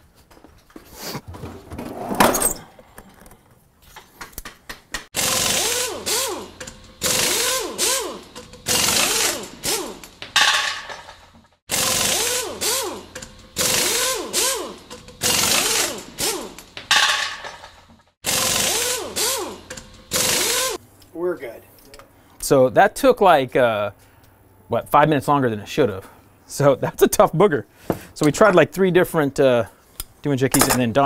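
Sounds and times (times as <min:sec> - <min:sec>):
harsh tool noise on metal: 0:05.2 - 0:20.8.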